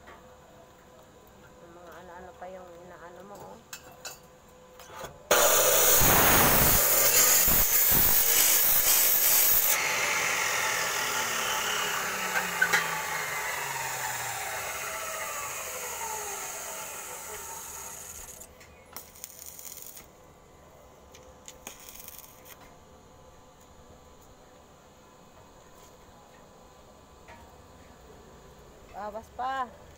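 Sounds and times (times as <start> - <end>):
motor winding down whine: 5.3 - 18.5
saw grinding through metal: 5.3 - 18.5.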